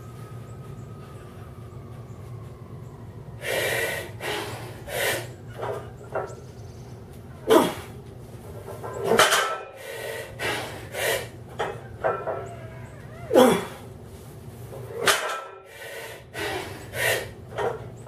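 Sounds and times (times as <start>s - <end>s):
forceful hissing breaths: 3.4s - 5.5s, 9.7s - 11.4s, 15.6s - 17.5s
person grunting: 7.5s - 7.9s, 13.3s - 13.8s.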